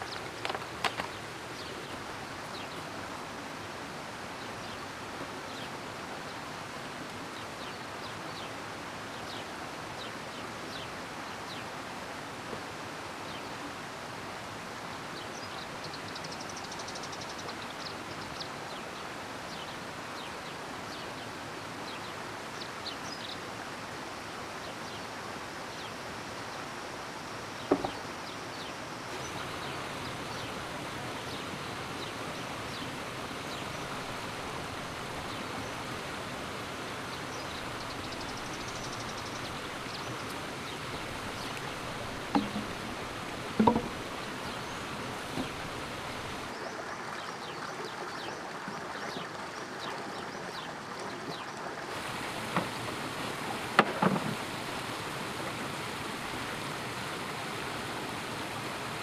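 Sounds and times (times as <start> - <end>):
forest background hiss: 0.0 - 59.0
sharp knocks: 27.7 - 28.0, 42.3 - 42.8, 43.6 - 44.0.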